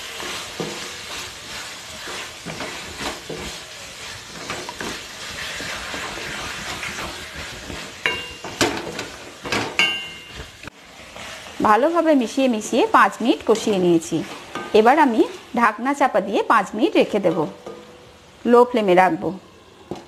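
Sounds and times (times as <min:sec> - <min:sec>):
wooden spatula scraping pan: 0:00.0 - 0:12.4, 0:13.3 - 0:15.5
meat sizzling in a pan: 0:00.0 - 0:18.4.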